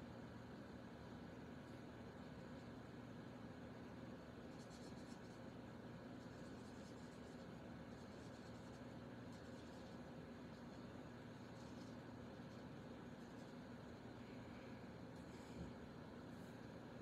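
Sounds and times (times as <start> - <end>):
steady low hum: 0.0 - 17.0
marker scratching on cardstock: 4.5 - 5.6, 6.2 - 13.8.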